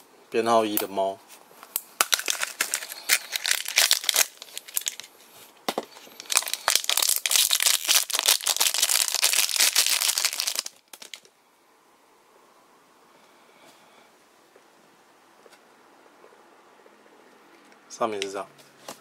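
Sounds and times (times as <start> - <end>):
plastic wrapping crinkling: 2.0 - 11.3.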